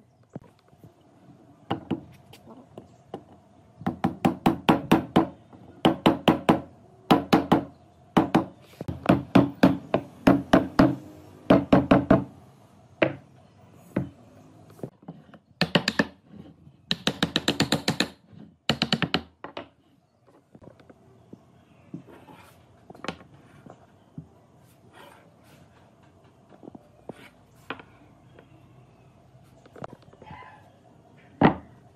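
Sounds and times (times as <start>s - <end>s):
hammer knocking wood: 3.8s - 12.3s.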